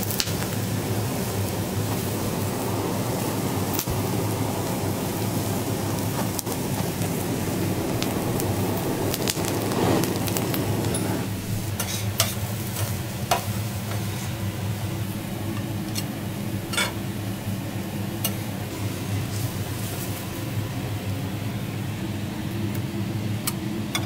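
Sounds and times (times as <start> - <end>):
torch flame rushing: 0.0 - 21.7
steady low hum: 0.0 - 23.9
metal spatulas scraping griddle: 10.9 - 12.9.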